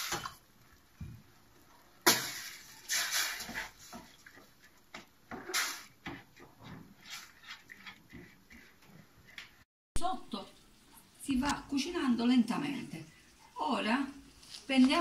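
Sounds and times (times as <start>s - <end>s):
spoon scraping and stirring: 2.3s - 9.6s.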